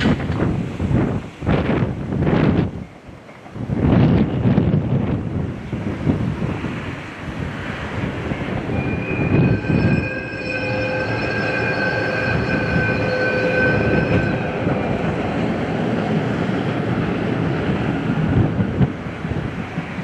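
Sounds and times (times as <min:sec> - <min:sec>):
train rumbling past: 0:00.0 - 0:20.0
high drawn-out tone: 0:08.5 - 0:16.4.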